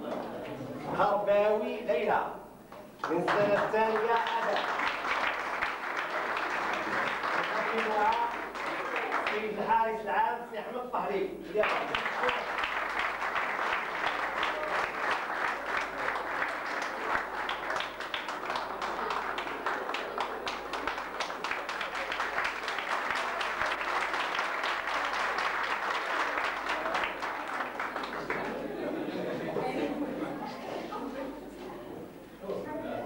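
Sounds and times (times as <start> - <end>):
audience clapping: 2.7 - 9.7, 11.5 - 29.1.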